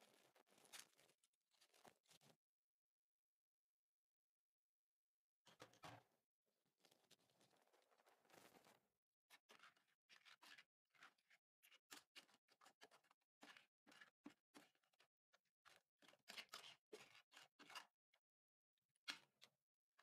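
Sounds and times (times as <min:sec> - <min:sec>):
spatula scraping crackly slime: 0:00.0 - 0:02.4, 0:07.0 - 0:18.0.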